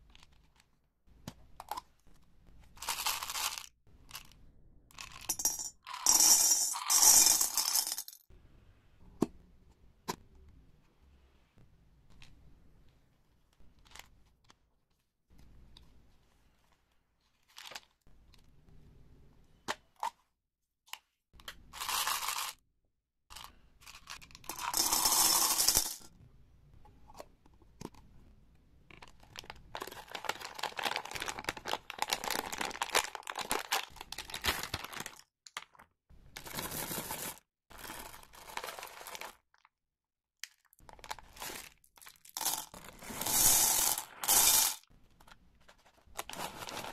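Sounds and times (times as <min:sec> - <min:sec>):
wrapper crinkling: 0:29.4 - 0:35.2.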